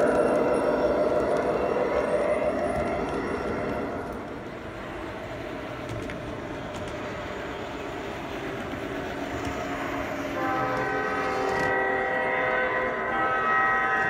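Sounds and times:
model locomotive running rumble: 0.0s - 14.0s
locomotive horn chord: 10.4s - 14.0s.

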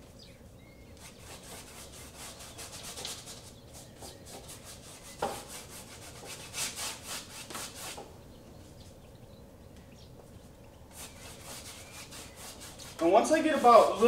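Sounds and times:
paintbrush rubbing on canvas: 1.0s - 8.1s, 10.9s - 14.0s.

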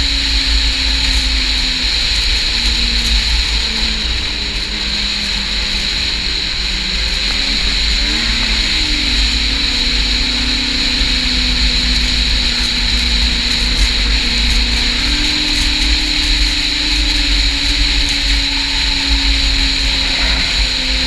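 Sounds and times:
snowmobile engine running: 0.0s - 21.0s.

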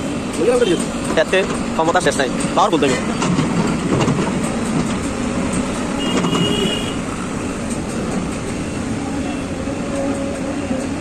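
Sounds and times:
road traffic: 0.0s - 11.0s.

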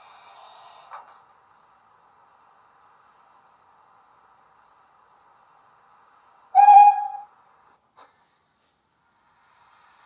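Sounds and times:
model steam whistle blast: 6.6s - 7.3s.

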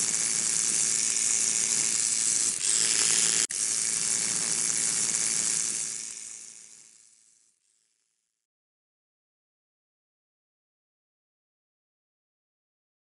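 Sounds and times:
electronic noise hiss: 0.0s - 8.0s.

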